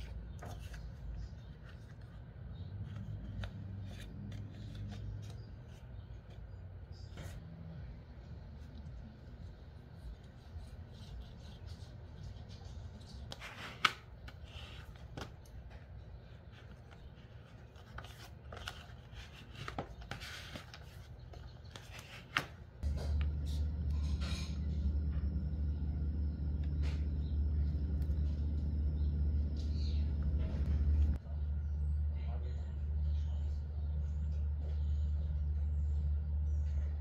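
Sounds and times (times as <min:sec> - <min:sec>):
paper rustling: 0:00.0 - 0:07.4, 0:09.0 - 0:25.4
steady low hum: 0:00.0 - 0:22.1, 0:22.7 - 0:37.0.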